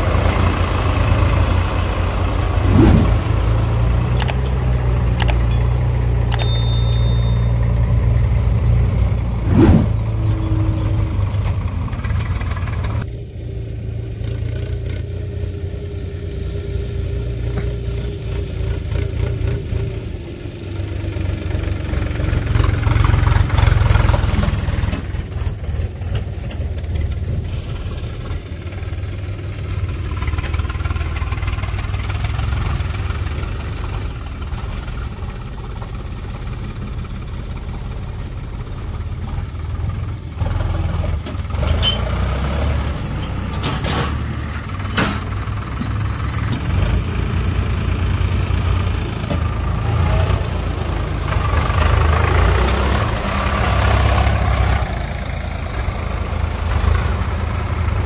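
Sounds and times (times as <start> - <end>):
tractor driving over loose dirt: 0.0 - 13.1, 21.9 - 58.0
tractor diesel engine: 0.0 - 58.0.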